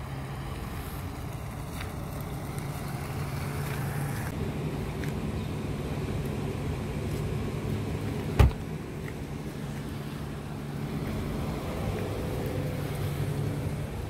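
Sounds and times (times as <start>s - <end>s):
car door slamming: 8.3s - 8.7s.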